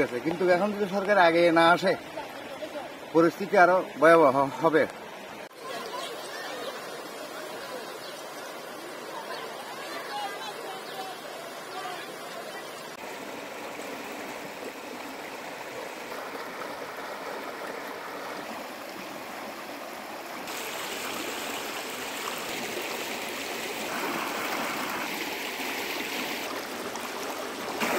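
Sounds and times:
floodwater rushing and churning: 0.0 - 27.9.

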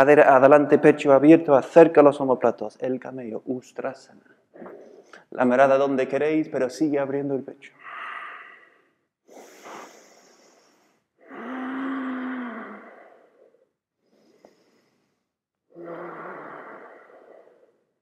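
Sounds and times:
person breathing heavily: 7.8 - 18.0
sighing exhales with low hum: 15.7 - 18.0.

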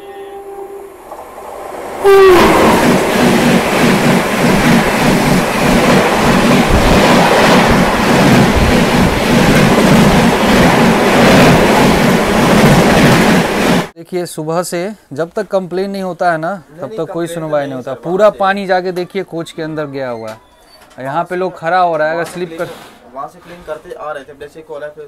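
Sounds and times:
train horn: 0.0 - 1.1, 2.0 - 3.0
rush of passing train coaches: 0.0 - 14.0.

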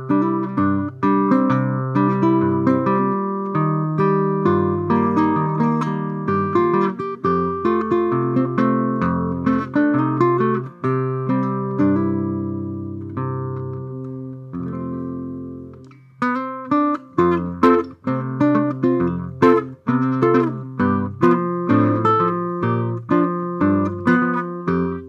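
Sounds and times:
solo guitar playing: 0.0 - 25.0.

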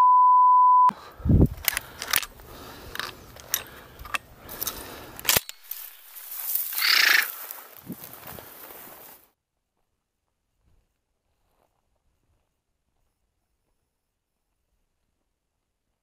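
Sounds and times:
censor bleep: 0.0 - 0.9
footsteps through dry grass: 1.4 - 15.3.

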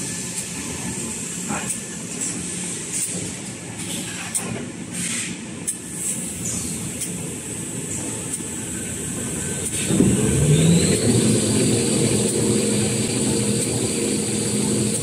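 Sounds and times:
rollers mechanical rumble: 6.6 - 15.0
high machine whine: 7.5 - 15.0.

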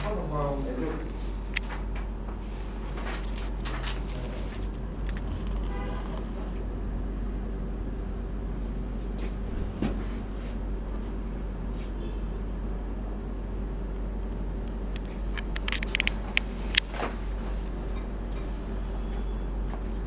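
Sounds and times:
low rumble: 2.2 - 11.7
sharp clicks: 14.6 - 16.9.

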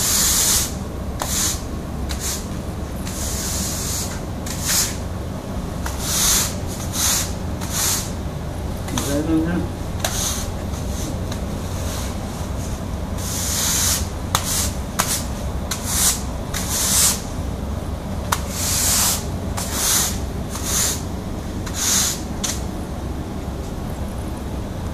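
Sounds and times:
push broom sweeping concrete: 0.0 - 5.0, 5.8 - 8.2, 8.9 - 9.4, 10.0 - 17.4, 18.3 - 22.7.

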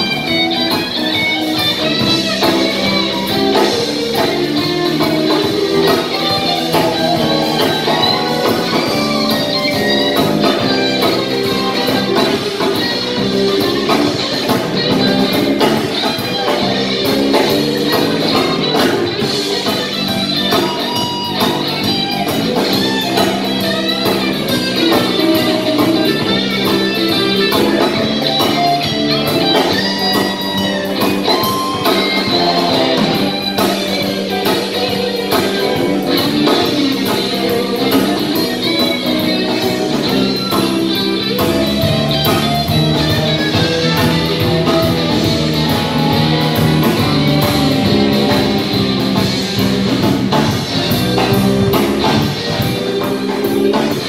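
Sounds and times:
live rock band playing: 0.0 - 54.0.

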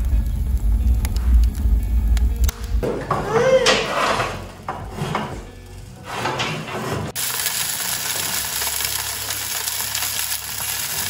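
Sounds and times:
chicken sizzling and crackling: 7.1 - 11.0.

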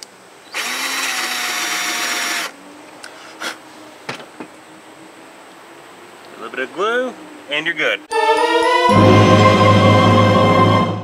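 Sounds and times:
power drill boring into wood: 0.5 - 2.5.

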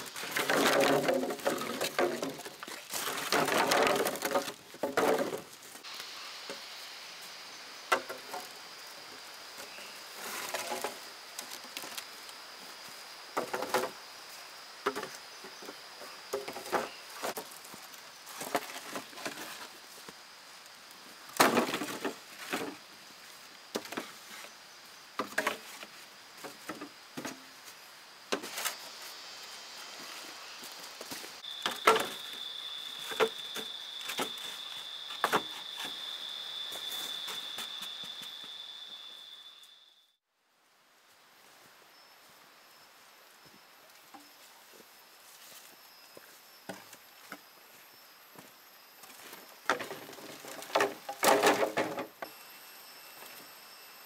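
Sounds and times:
wood knocking and cracking: 0.2 - 5.5, 49.7 - 52.1.

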